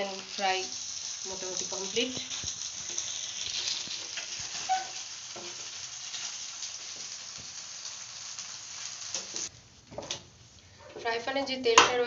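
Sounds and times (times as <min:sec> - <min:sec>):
chicken sizzling in oil: 0:00.0 - 0:09.5.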